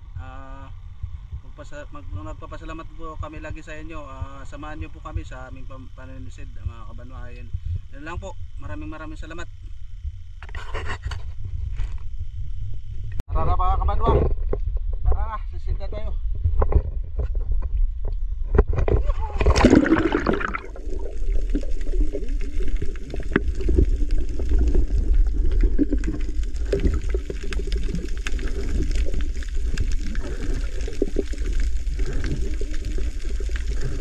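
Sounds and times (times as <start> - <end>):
low underwater rumble: 0.0 - 10.4, 11.2 - 34.0
faint underwater crackling: 16.5 - 34.0
splash of diver entering water: 19.4 - 20.7.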